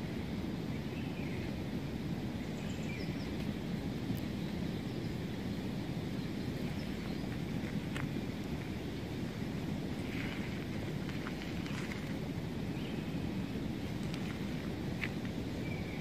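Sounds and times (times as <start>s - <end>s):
wind rumble on microphone: 0.0s - 16.0s
faint bird chirps: 2.4s - 3.4s, 15.5s - 16.0s.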